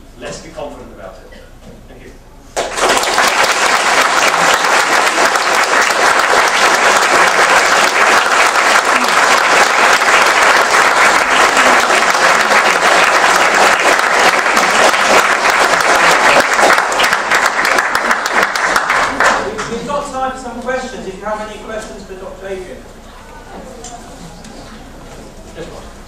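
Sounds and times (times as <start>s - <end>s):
audience applauding: 2.6s - 19.8s.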